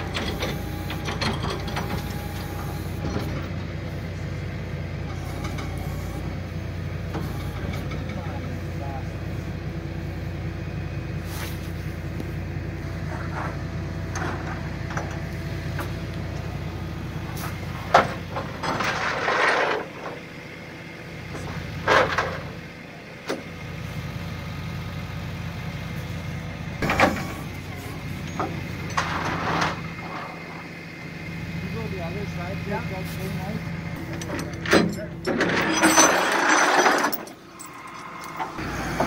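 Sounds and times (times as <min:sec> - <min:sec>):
truck engine idling: 0:00.0 - 0:35.8, 0:37.0 - 0:39.0.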